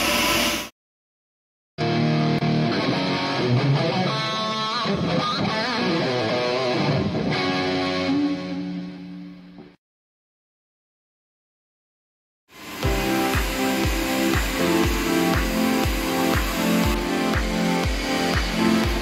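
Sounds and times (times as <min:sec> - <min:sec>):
electric guitar with sliding notes: 0:01.8 - 0:09.7, 0:12.6 - 0:19.0.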